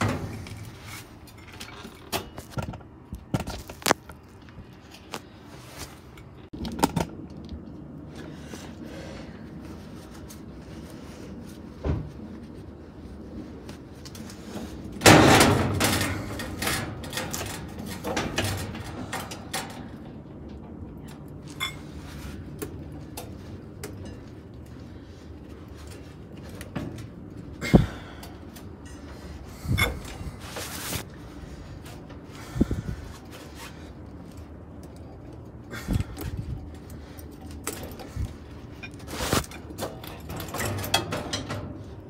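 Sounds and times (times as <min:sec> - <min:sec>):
metal scraping rattle: 0:00.0 - 0:02.6, 0:14.3 - 0:24.5, 0:37.0 - 0:42.0.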